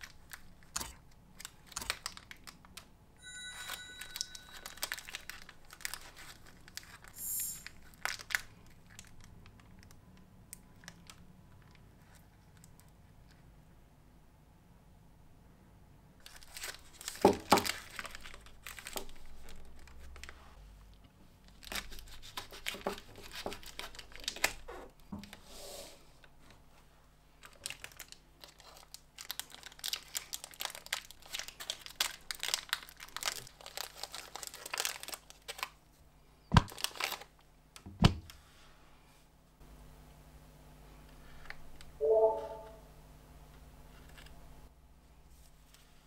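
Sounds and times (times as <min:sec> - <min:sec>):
wrapper crinkling and tearing: 0:00.0 - 0:02.9, 0:03.6 - 0:12.8, 0:16.2 - 0:20.4, 0:21.4 - 0:24.7, 0:27.4 - 0:35.8, 0:36.6 - 0:37.5.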